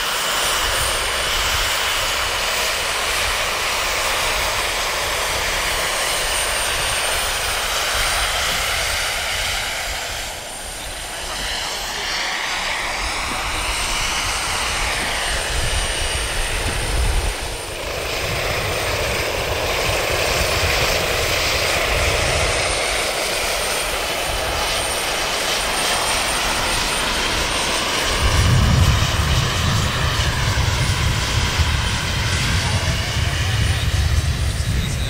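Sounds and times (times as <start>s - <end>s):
helicopter rotors: 0.0s - 35.0s
model helicopter turbine whine: 0.0s - 35.0s.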